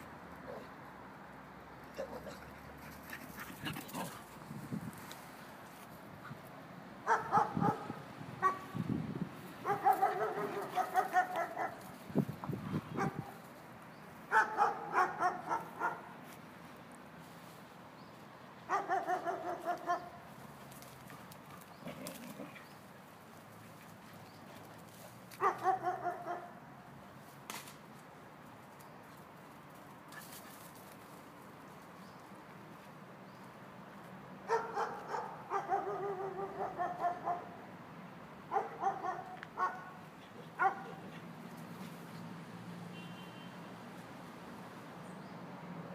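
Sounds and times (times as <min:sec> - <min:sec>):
dog barking: 0:07.0 - 0:08.7, 0:09.6 - 0:11.8, 0:13.0 - 0:13.4, 0:14.3 - 0:16.1, 0:18.7 - 0:20.2, 0:25.4 - 0:26.6, 0:34.5 - 0:37.6, 0:38.5 - 0:40.0, 0:40.6 - 0:41.0.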